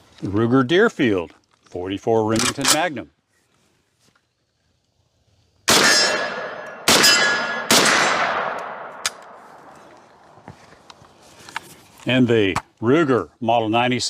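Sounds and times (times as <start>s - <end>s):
metallic ring of steel targets: 5.7s - 8.4s
rifle shots echoing: 5.7s - 9.6s.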